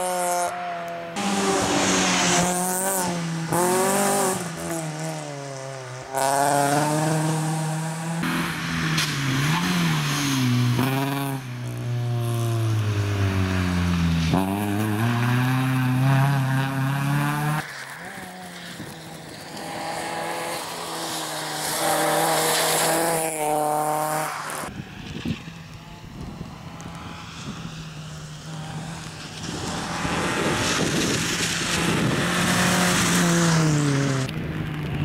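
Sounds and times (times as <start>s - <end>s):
rally car engine revving: 0.0s - 35.0s.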